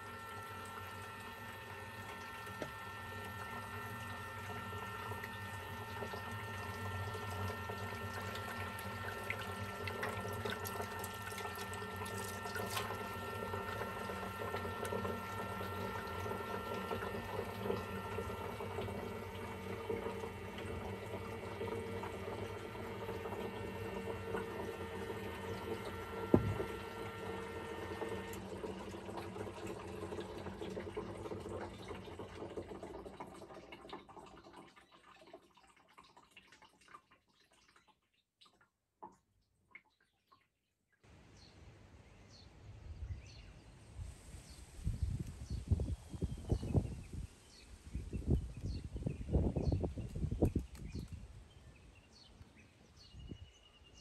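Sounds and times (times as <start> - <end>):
electric water pump humming: 0.0 - 37.8, 41.0 - 54.0
tap water running into sink: 0.0 - 39.2.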